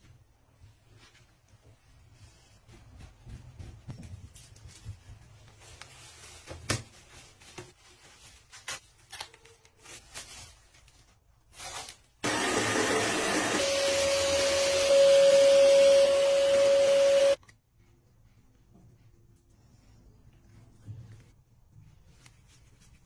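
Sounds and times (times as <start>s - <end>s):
blow dryer rushing air: 12.2s - 17.4s.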